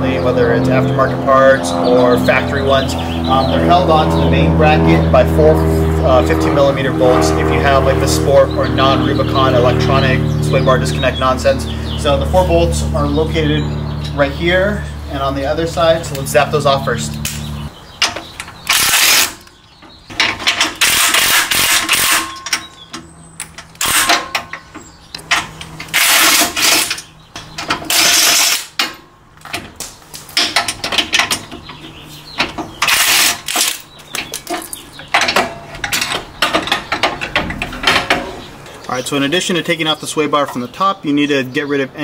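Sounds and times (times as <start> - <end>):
impact wrench hammering: 20.1 - 22.7, 23.8 - 24.7
metallic clicks and knocks: 28.8 - 38.6.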